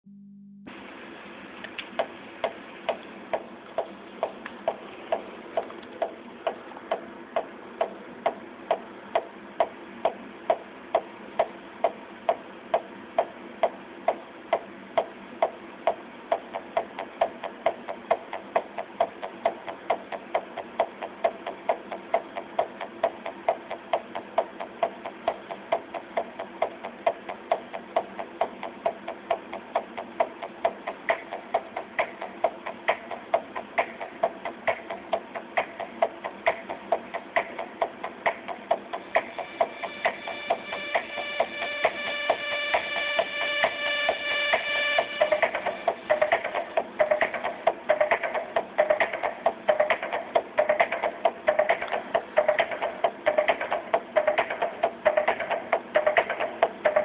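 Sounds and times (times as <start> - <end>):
electronic dance music: 13.2 - 57.0.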